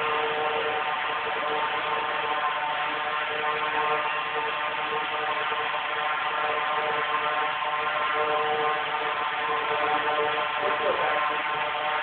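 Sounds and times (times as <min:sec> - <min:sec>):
drone propellers whirring: 0:00.0 - 0:12.0.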